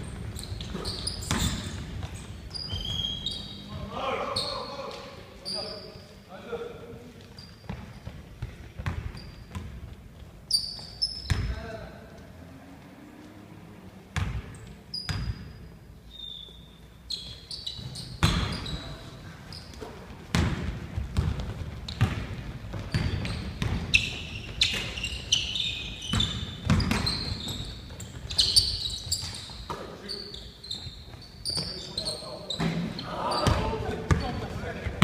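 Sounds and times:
sneaker squeaks: 0.0s - 11.7s, 14.2s - 35.0s
basketball bouncing on hardwood floor: 7.7s - 9.9s, 20.3s - 24.0s, 26.1s - 27.7s.

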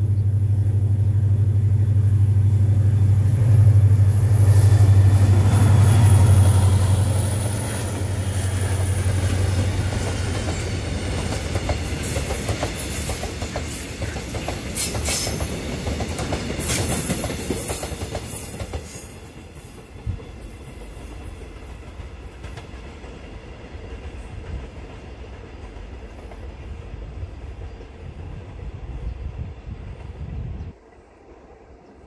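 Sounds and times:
train low rumble: 0.0s - 32.0s
train wheels clacking over rail joints: 7.3s - 23.3s.

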